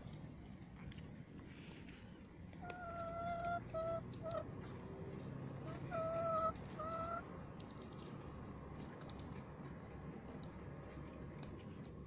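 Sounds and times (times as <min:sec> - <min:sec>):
animals crunching dry kibble: 0:00.0 - 0:12.0
hen calling: 0:02.6 - 0:04.5, 0:05.6 - 0:07.2.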